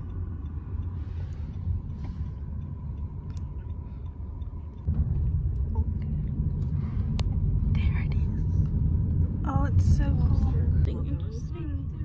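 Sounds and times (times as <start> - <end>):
car road noise rumble: 0.0 - 12.0.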